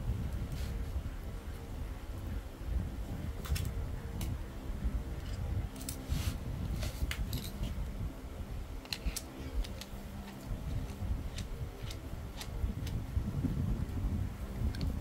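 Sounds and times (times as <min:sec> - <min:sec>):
low steady hum: 0:00.0 - 0:15.0
clicks of rifle parts handled: 0:08.8 - 0:13.0.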